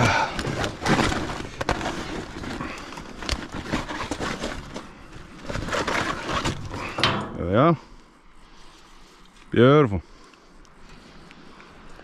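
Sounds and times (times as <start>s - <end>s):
rustling handling noise: 0.0s - 7.6s.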